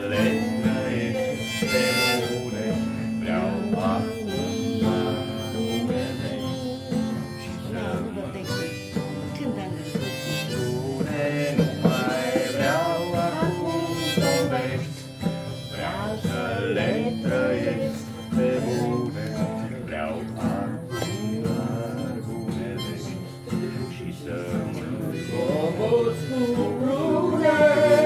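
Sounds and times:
live band instrumental: 0:00.1 - 0:19.3.

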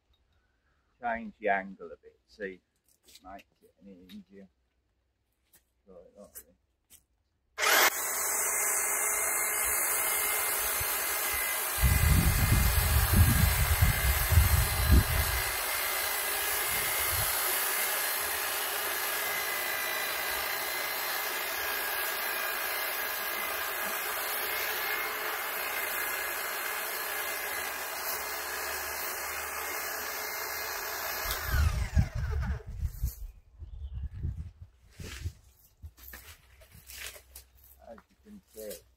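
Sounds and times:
electric hedge trimmer running: 0:07.6 - 0:32.8.

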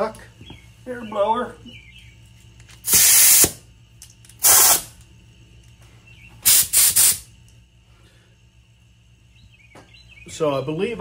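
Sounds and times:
compressed air blasts hissing: 0:02.8 - 0:03.6, 0:04.4 - 0:04.9, 0:06.4 - 0:07.4.

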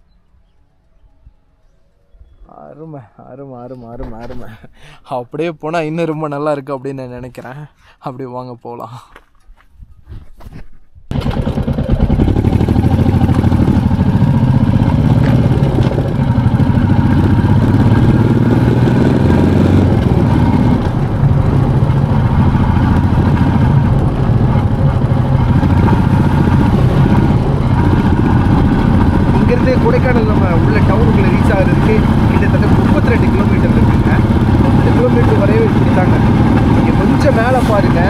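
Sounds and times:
motorcycle engine running: 0:11.1 - 0:38.0.

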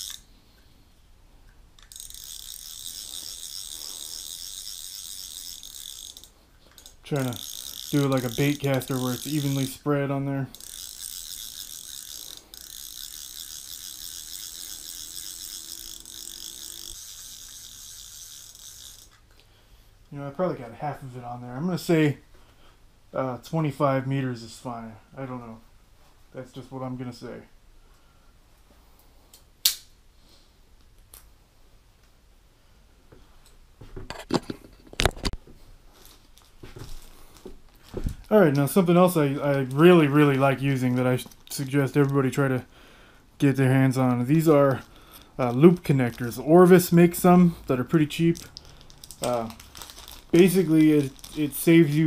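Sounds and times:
fishing reel ratcheting clicks: 0:00.0 - 0:00.3, 0:01.8 - 0:19.4, 0:38.2 - 0:42.5, 0:44.3 - 0:52.0
rustling: 0:33.2 - 0:42.4, 0:47.6 - 0:52.0.

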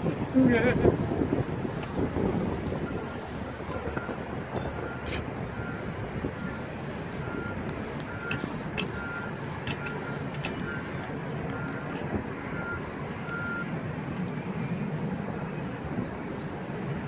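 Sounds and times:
low rumble and wind noise: 0:00.0 - 0:17.0
reversing alarm beeping: 0:02.8 - 0:11.9, 0:12.5 - 0:13.7.

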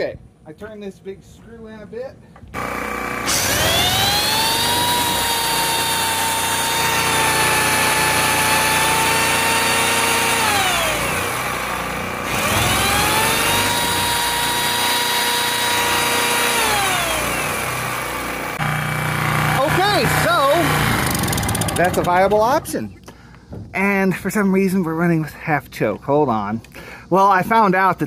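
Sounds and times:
generator running: 0:02.5 - 0:22.7
electric pole saw whining: 0:02.6 - 0:22.5.

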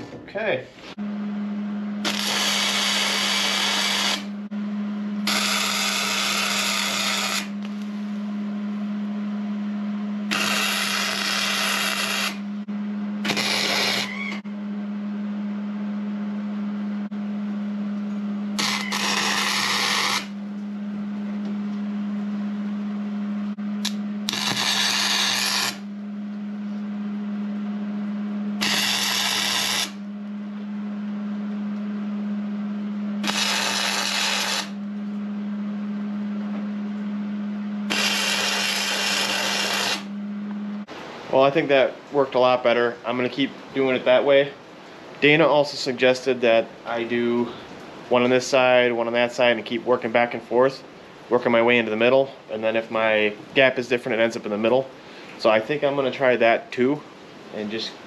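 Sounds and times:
steady low hum: 0:00.0 - 0:58.0
welder crackling buzz: 0:01.9 - 0:08.0, 0:10.2 - 0:14.5, 0:18.1 - 0:20.9, 0:23.4 - 0:25.9, 0:28.4 - 0:30.1, 0:32.7 - 0:35.5, 0:36.5 - 0:41.8.

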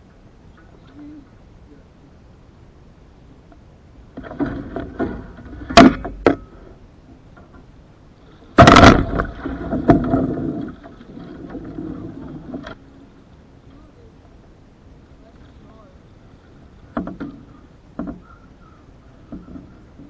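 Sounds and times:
water splashing and sloshing: 0:04.1 - 0:06.4, 0:08.3 - 0:13.4
heavy splash: 0:08.6 - 0:12.4
knocks from boat hull: 0:16.9 - 0:17.4.

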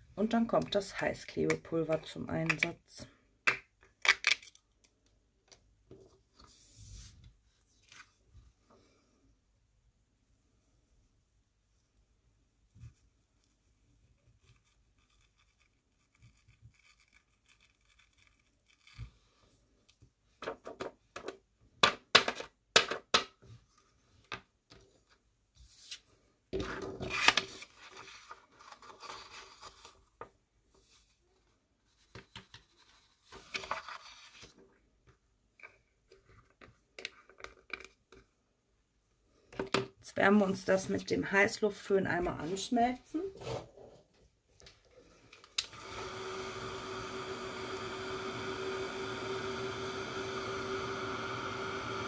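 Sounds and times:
paper rustling and scraping: 0:25.0 - 0:31.2, 0:31.9 - 0:34.6.

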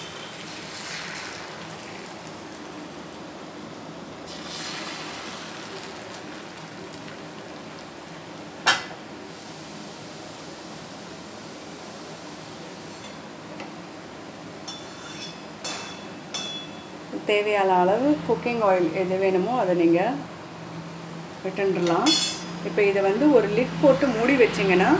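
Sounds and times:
batter sizzling on hot iron: 0:00.0 - 0:13.3
steel utensils clinking: 0:21.8 - 0:22.5.

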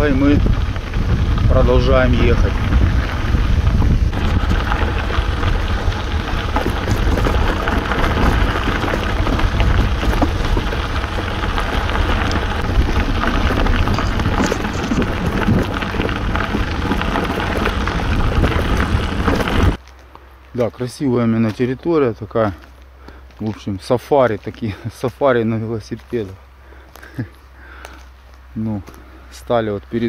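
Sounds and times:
wind buffeting microphone: 0:00.0 - 0:19.8
bicycle tyres on unpaved path: 0:00.0 - 0:30.0.

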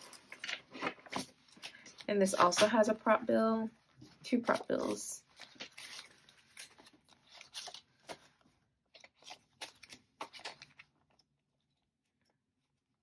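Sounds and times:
paper rustling and crinkling: 0:00.0 - 0:03.0, 0:04.0 - 0:11.2.

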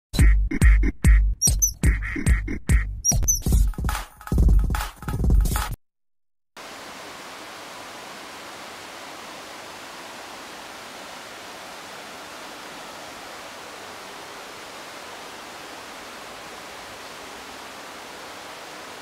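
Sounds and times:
waterfall rushing: 0:06.6 - 0:19.0.

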